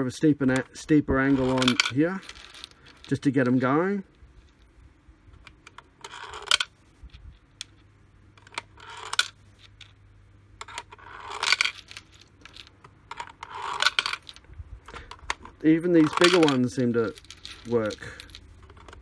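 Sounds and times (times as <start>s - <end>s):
screws rattling in plastic box: 1.2s - 3.2s, 10.6s - 19.0s.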